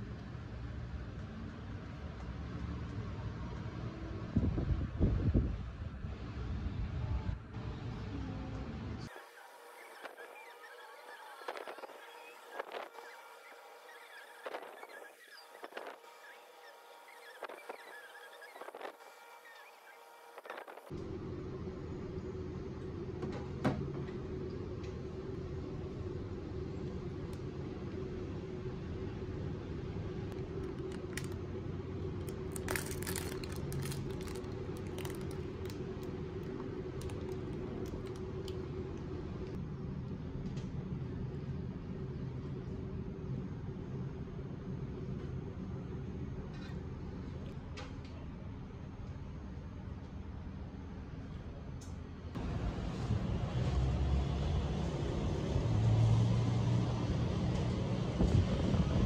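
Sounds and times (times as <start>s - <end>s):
city traffic rumble: 0.0s - 9.2s, 20.7s - 59.0s
steady low hum: 0.0s - 55.9s
plastic wrapper crinkling: 30.4s - 31.4s, 32.2s - 38.5s.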